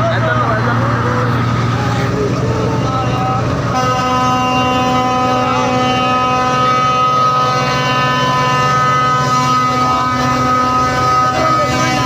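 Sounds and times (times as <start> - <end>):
bus engine running: 0.0 - 12.0
bus air horn blast: 2.7 - 12.0.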